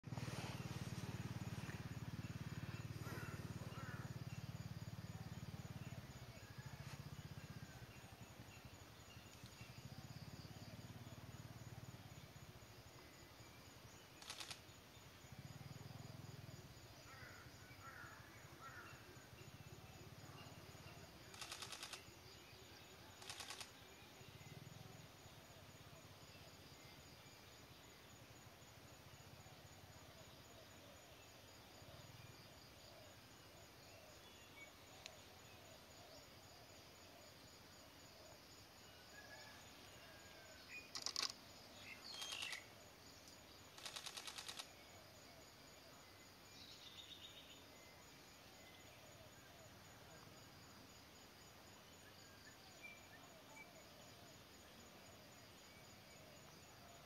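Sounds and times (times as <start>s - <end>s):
faint bird chirps: 0.1s - 28.0s, 37.1s - 50.8s
rapid dry rattle: 21.3s - 22.0s, 40.9s - 41.3s, 43.8s - 44.6s.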